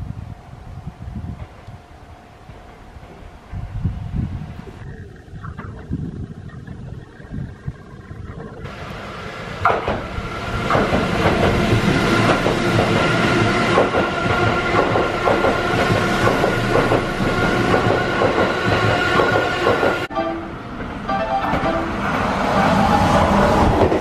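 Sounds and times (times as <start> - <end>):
train wheels rumbling on rail: 0.0 - 4.9, 8.7 - 24.0
train high whine: 0.0 - 5.2, 8.7 - 24.0
wheels clacking over rail joints: 8.7 - 20.1, 20.7 - 24.0.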